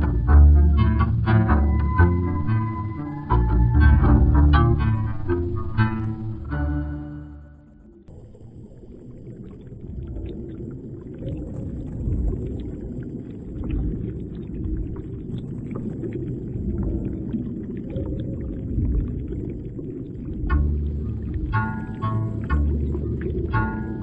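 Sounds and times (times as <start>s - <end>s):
underwater rumble of moving water: 0.0s - 24.0s
faint underwater clicks: 7.6s - 24.0s.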